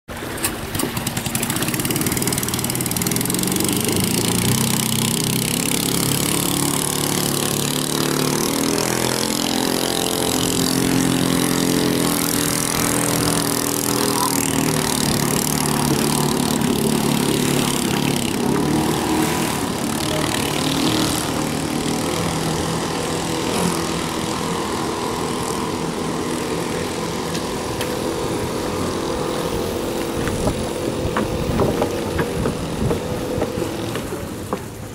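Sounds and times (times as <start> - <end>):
small boat engine running hard: 0.1 - 34.8.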